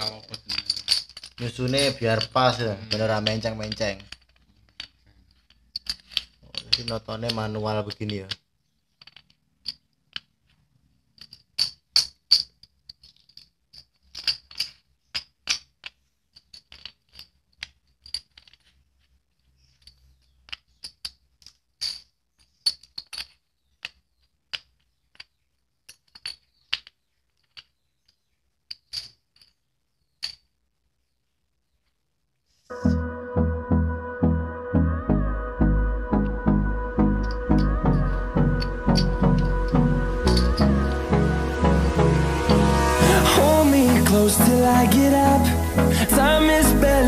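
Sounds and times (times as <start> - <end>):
metal bottle caps clinking: 0.0 - 18.8, 19.6 - 29.6, 30.2 - 30.5, 37.2 - 41.0
bottle caps clicking on cardboard: 0.0 - 30.5, 38.6 - 39.6.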